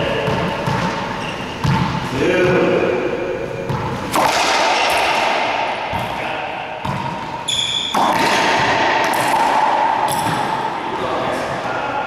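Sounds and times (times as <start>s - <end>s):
racquetball striking racquets and walls: 0.0s - 12.0s
high squeak: 1.2s - 1.6s, 7.5s - 8.0s.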